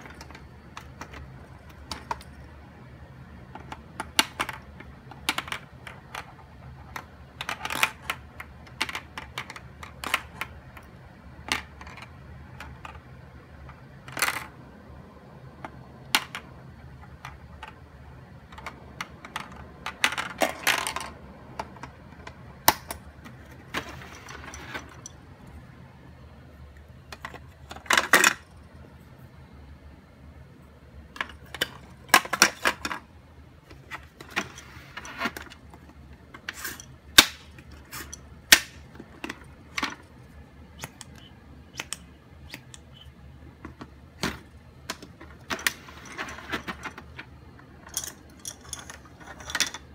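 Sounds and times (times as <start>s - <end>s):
plastic toy clicks and clatter: 3.4s - 13.0s, 40.8s - 43.0s.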